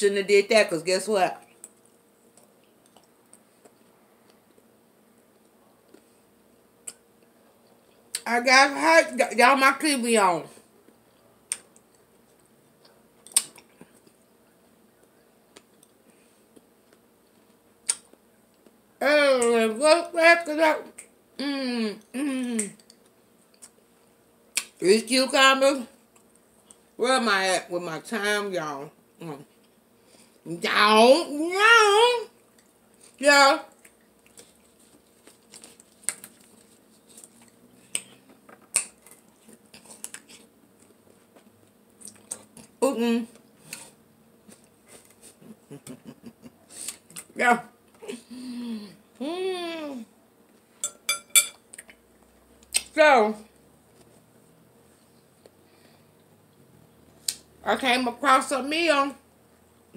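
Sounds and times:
faint chewing clicks: 1.5 - 4.7.

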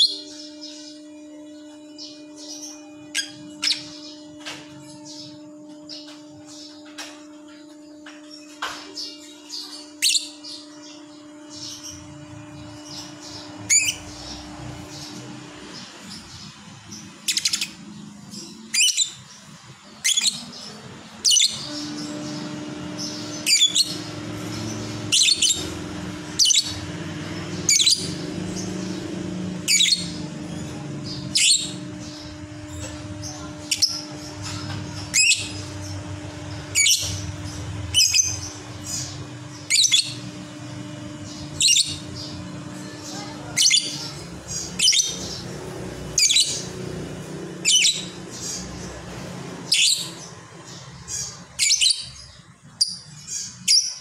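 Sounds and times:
bird chirping: 0.0 - 54.0
steady low hum: 0.0 - 54.0.

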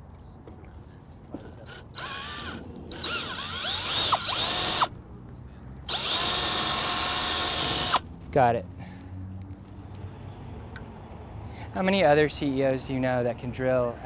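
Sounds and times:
cordless drill motor whine: 1.6 - 4.9, 5.9 - 8.0.

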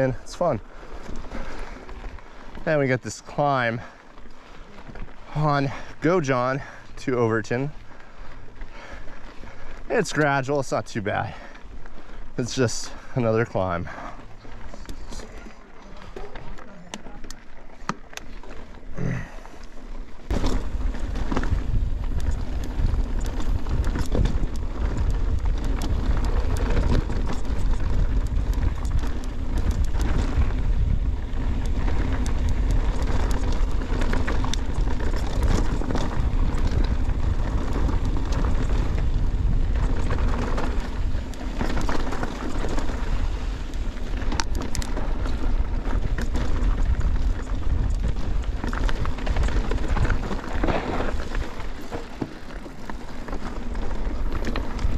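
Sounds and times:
bike clicks and rattles: 0.0 - 54.9
tyre rumble on dirt: 20.2 - 54.9
wind buffeting microphone: 20.3 - 54.9.

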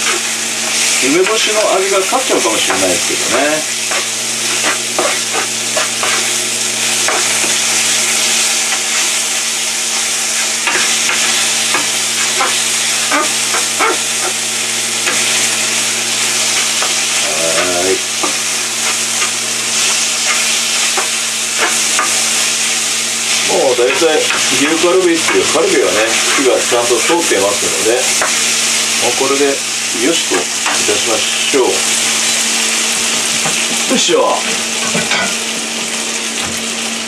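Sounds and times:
spatula scraping a pan: 0.0 - 9.2, 9.9 - 14.4, 15.0 - 29.2
food sizzling in a frying pan: 0.0 - 37.0.

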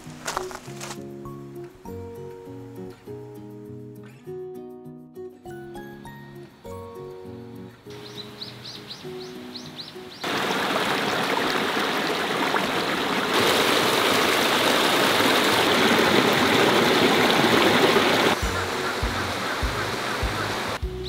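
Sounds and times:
stream rushing over rocks: 10.2 - 20.8.

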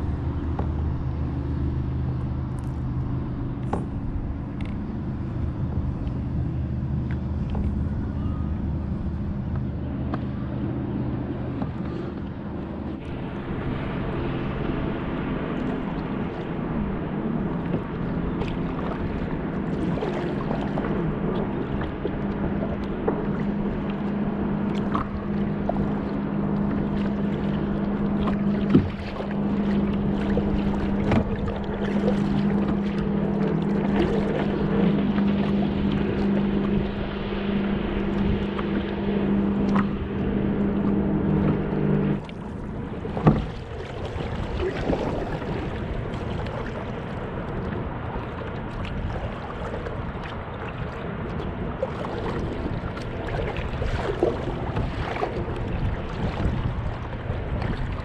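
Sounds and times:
kayak hull slapping water: 0.0 - 58.0
motor hum: 0.0 - 58.0.

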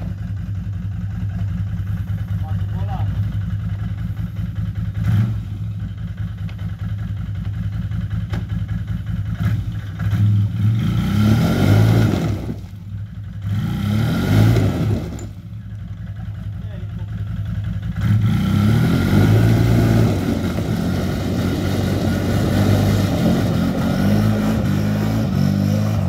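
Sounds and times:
atv engine revving: 0.0 - 26.0
tyres spinning on grass: 19.2 - 24.8.

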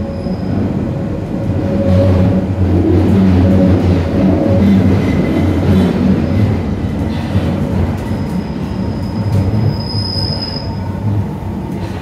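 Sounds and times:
train wheels rumbling: 0.0 - 12.0.

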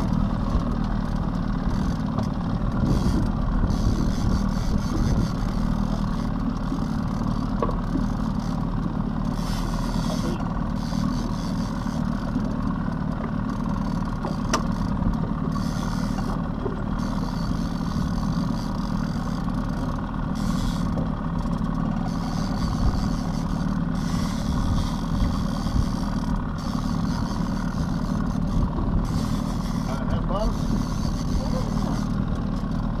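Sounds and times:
outboard motor rumble: 0.0 - 33.0
wind buffeting microphone: 2.6 - 5.6.

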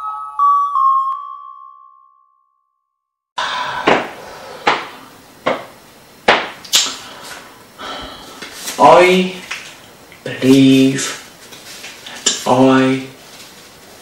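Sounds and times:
faint room noise: 3.4 - 14.0
sharp knocks: 3.8 - 6.6.

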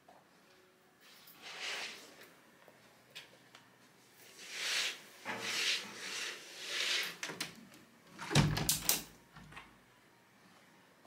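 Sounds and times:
cleaning swishing strokes: 4.2 - 7.2.

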